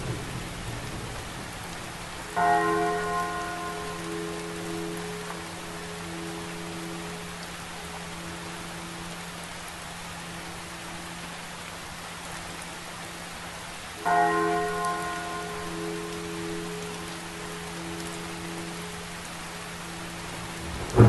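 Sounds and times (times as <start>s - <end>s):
steady rain: 0.0s - 21.0s
church bell ringing: 2.4s - 6.3s, 14.0s - 19.0s.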